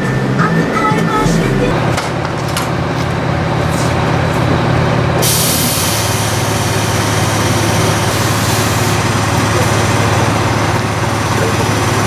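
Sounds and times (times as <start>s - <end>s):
coach engine idling: 0.0s - 12.0s
compressed air hissing: 5.2s - 7.0s.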